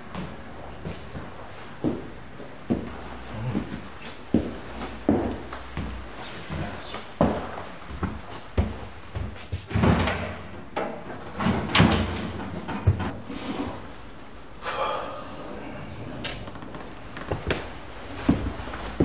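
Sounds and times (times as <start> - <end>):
cabinet doors and drawers shutting: 9.7 - 13.1.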